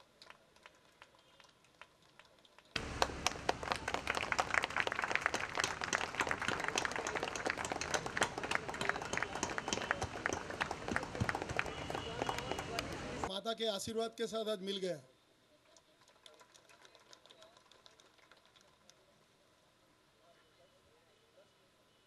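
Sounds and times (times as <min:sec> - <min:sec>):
audience applauding: 0:00.2 - 0:13.3.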